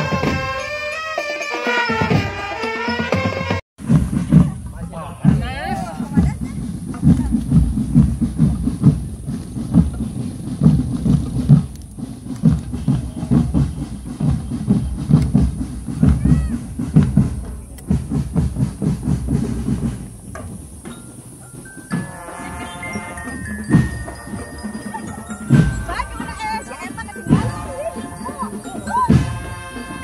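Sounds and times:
marching drums beating fast: 0.0s - 30.0s
high ringing bell notes: 20.9s - 30.0s.

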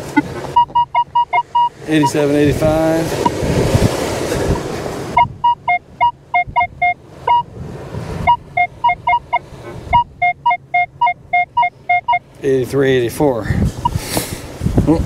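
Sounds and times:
metal detector beeps: 0.0s - 2.2s, 5.2s - 7.5s, 8.2s - 12.3s.

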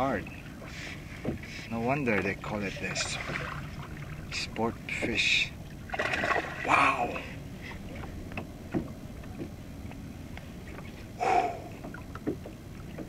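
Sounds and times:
waves lapping against kayak hull: 0.0s - 13.0s
light knocks and clicks: 8.0s - 11.0s, 11.8s - 13.0s.

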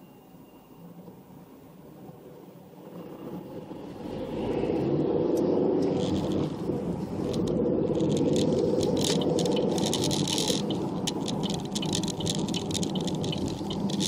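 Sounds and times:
car engine and road noise: 0.0s - 14.0s
rapid rattling clicks: 7.2s - 14.0s.

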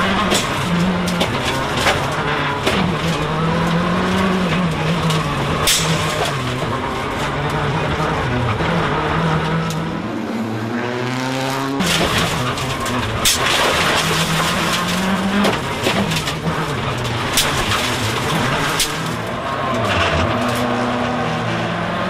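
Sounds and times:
rally car engine revving: 0.0s - 22.0s
road and tyre noise: 0.0s - 22.0s
sharp cracks: 11.8s - 19.3s.

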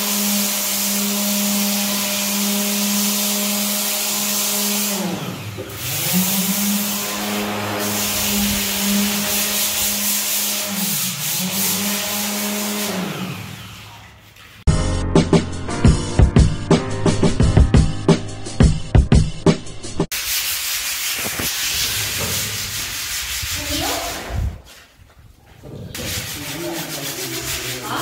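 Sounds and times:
power tool grinding concrete: 0.0s - 14.0s.

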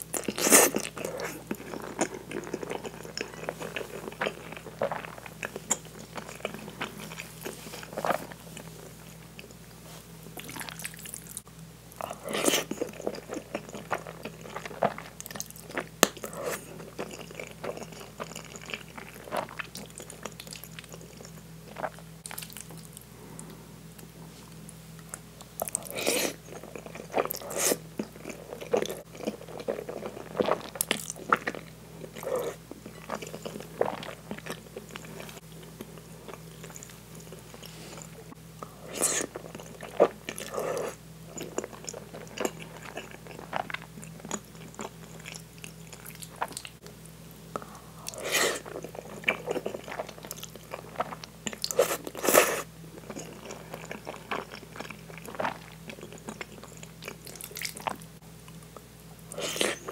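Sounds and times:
wet chewing and smacking: 38.9s - 47.0s, 47.6s - 59.9s.

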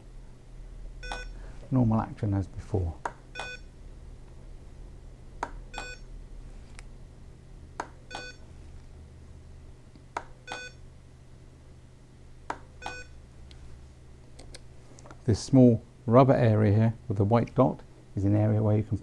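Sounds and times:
steady low hum: 0.0s - 19.0s
ventilator click: 14.2s - 15.3s.

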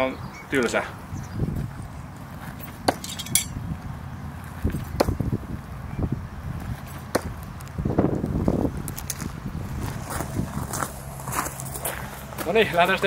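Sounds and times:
wind rumble on microphone: 1.0s - 12.4s
throwing knives clicking and clinking: 2.9s - 3.6s.

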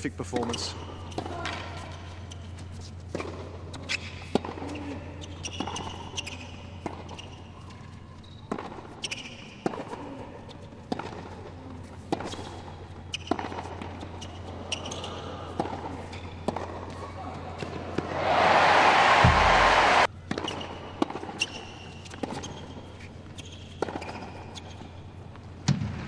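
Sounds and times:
tennis ball bouncing: 10.8s - 17.0s.

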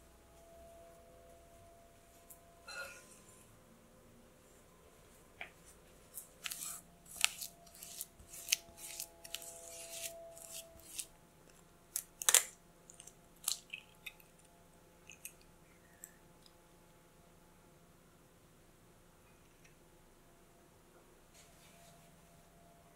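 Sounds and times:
spatula scraping glass bowl: 6.4s - 11.1s.

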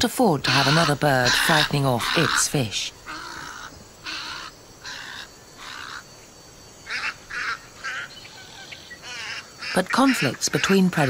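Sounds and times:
egrets giving harsh calls: 0.4s - 6.0s.

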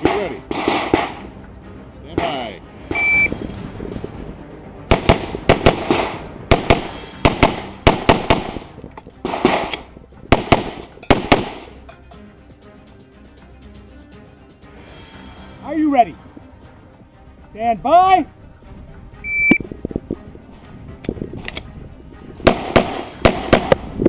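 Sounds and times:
pistol shots with echo: 0.0s - 1.3s, 4.9s - 11.7s, 22.5s - 23.9s.

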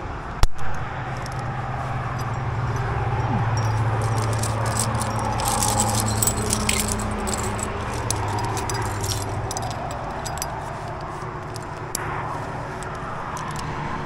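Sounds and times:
steady low rumble: 0.0s - 14.0s
carabiners clinking and jangling: 1.1s - 13.8s.

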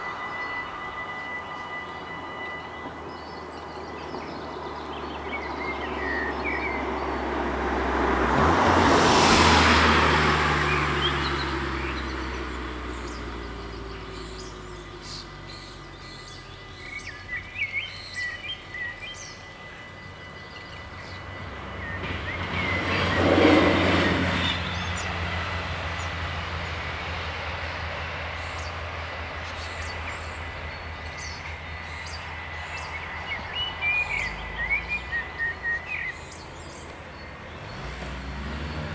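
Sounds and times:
level crossing bells ringing: 0.0s - 4.7s, 17.4s - 23.1s
birds chirping: 0.0s - 7.6s, 9.1s - 38.9s
diesel railcar passing: 0.0s - 38.9s.

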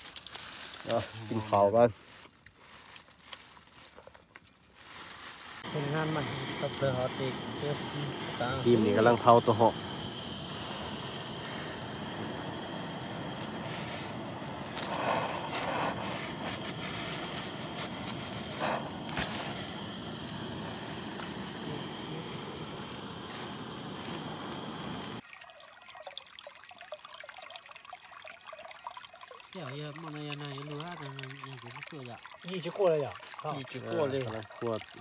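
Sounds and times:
trickle of water: 0.0s - 19.6s, 25.2s - 35.0s
butane torch hissing: 0.1s - 3.9s, 4.8s - 25.2s.

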